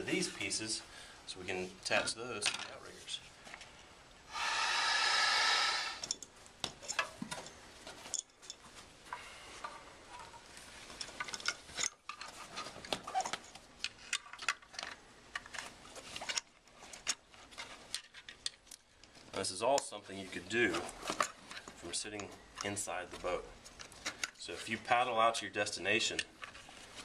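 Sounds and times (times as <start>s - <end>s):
parts clicking and clattering: 2.4s - 2.8s, 6.0s - 19.9s
air rushing into pontoon: 4.3s - 6.1s.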